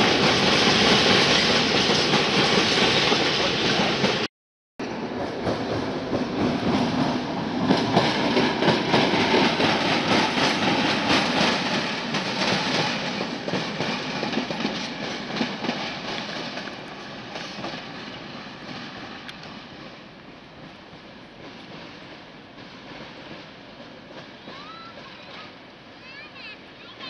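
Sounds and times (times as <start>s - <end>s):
train wheels clattering over rail joints: 5.0s - 25.5s.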